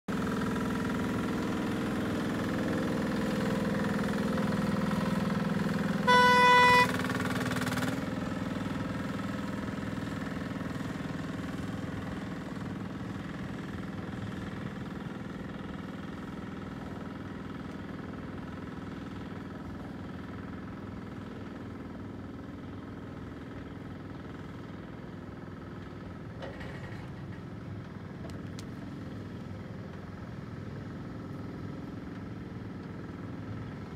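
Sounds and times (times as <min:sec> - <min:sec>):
small engine running: 0:00.1 - 0:27.3
short loud horn beep: 0:06.0 - 0:07.1.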